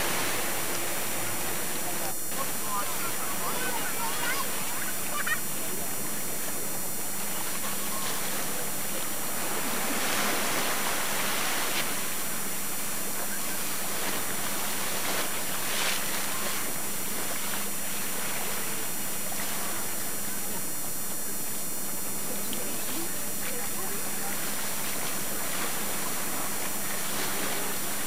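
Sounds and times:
faint low hum: 0.0 - 28.0
rushing water: 7.2 - 20.1.

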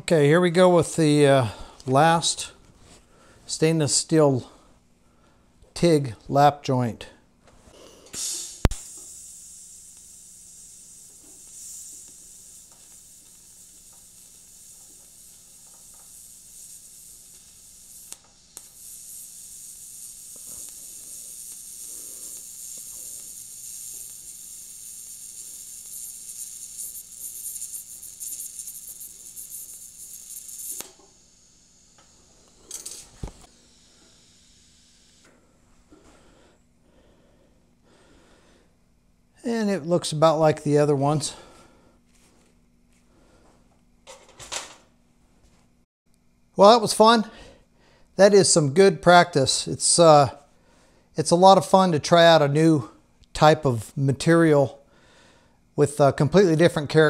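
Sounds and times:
welding arc hissing: 7.8 - 35.3, 48.2 - 50.5.

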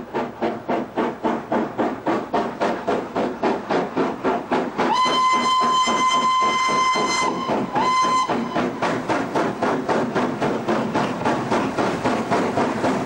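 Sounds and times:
steam locomotive exhaust beating: 0.0 - 13.0
steam whistle blast: 4.9 - 8.7.

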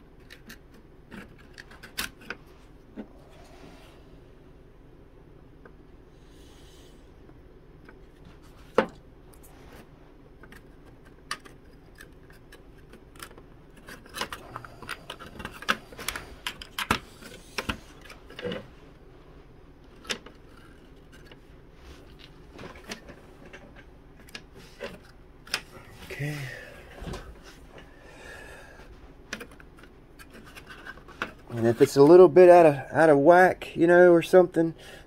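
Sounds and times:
wooden parts clicking and tapping: 10.4 - 18.7.

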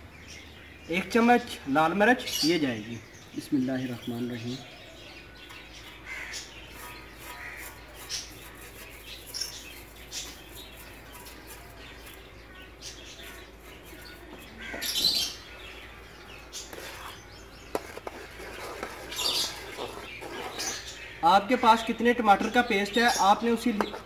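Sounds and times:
small birds chirping: 0.0 - 24.0
metal ladle scraping stirring: 6.4 - 12.2, 16.5 - 21.1.

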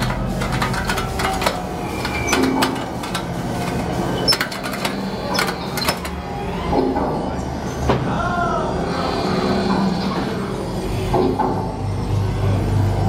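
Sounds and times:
mechanical clattering and clicks: 0.0 - 7.5.

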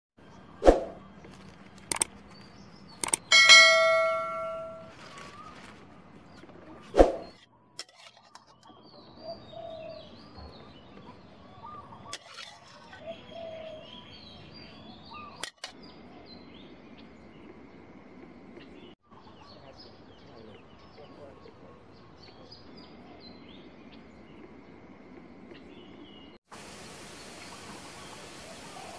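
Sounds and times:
small birds chirping: 0.2 - 28.9
bright electronic chime: 3.3 - 4.9.

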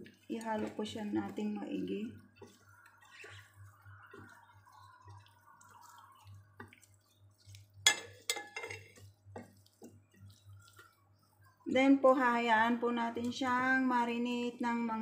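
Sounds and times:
wet squishing of raw chicken: 0.0 - 11.7.

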